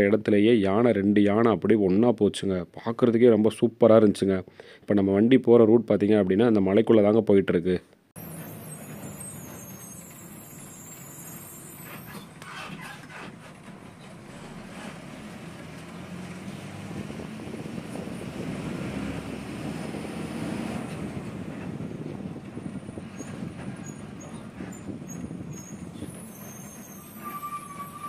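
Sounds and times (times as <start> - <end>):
bus engine drone and road rumble: 8.2 - 28.0.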